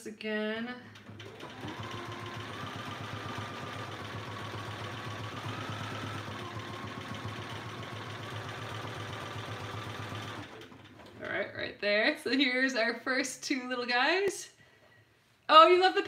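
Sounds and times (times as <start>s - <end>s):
sewing machine running: 0.9s - 11.3s.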